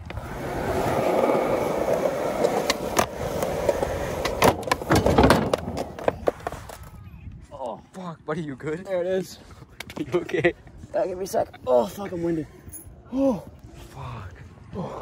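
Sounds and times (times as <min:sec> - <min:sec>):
skateboard clacks: 0:00.0 - 0:06.9
skateboard wheels rolling on concrete: 0:00.0 - 0:07.4.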